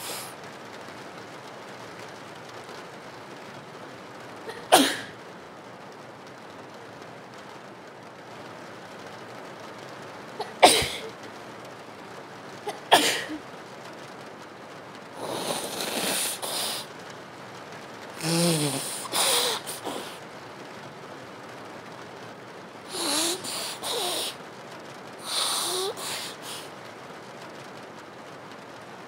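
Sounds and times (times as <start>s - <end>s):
rain: 0.0s - 29.0s
woman blowing her nose: 15.2s - 16.9s, 18.2s - 20.2s, 22.9s - 24.4s, 25.2s - 26.7s
woman sneezing: 18.2s - 20.2s.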